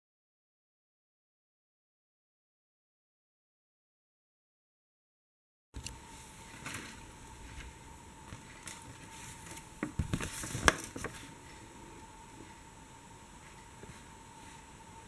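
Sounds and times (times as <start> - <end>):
paper crackling and rustling: 6.4 - 11.3.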